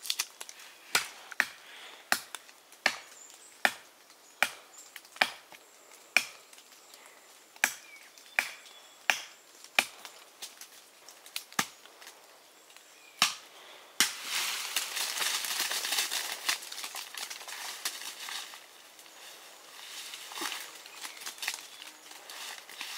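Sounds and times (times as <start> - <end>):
blade chopping branches: 0.0 - 5.6, 13.2 - 18.6, 20.1 - 22.9
crackling rustle of leafy branches: 0.0 - 22.9.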